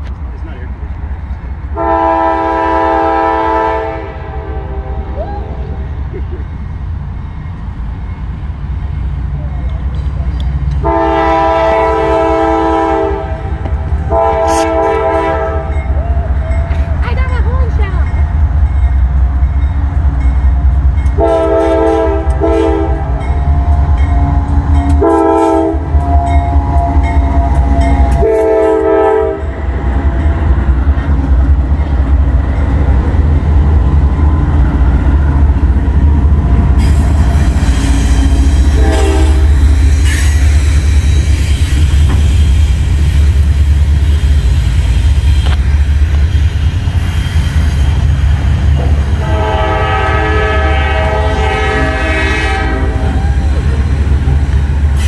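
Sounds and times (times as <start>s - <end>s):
heavy locomotive engine rumble: 0.0s - 55.0s
train horn blasts: 1.8s - 5.8s, 10.8s - 16.0s, 21.1s - 30.3s, 38.0s - 40.5s, 49.0s - 53.5s
train wheels clattering on rails: 15.7s - 28.9s, 29.7s - 49.6s.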